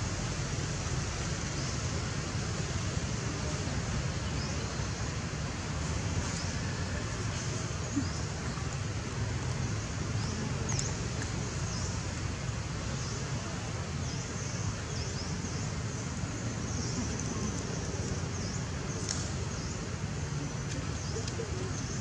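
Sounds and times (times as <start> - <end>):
faint click: 19.0 - 19.3.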